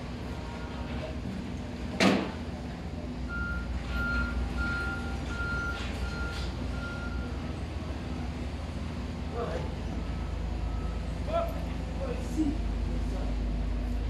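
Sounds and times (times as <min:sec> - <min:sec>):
reversing alarm beeping: 0:03.3 - 0:07.4.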